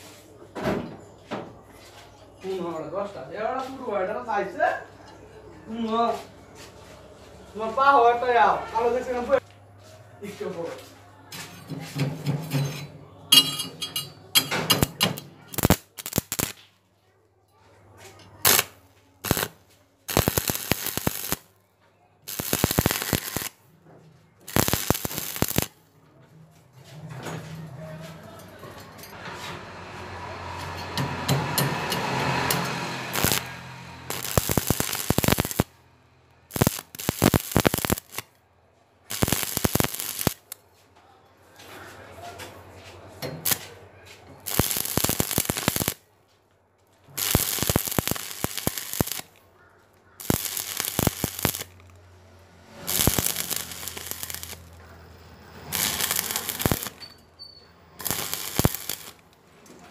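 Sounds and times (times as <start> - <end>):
welding arc crackling: 13.9 - 16.6, 18.4 - 21.5, 22.3 - 23.6, 24.5 - 25.8, 31.0 - 35.8, 36.5 - 38.3, 39.1 - 40.6, 43.4 - 43.7, 44.4 - 46.0, 47.1 - 49.4, 50.2 - 52.0, 52.6 - 57.1, 57.9 - 59.3.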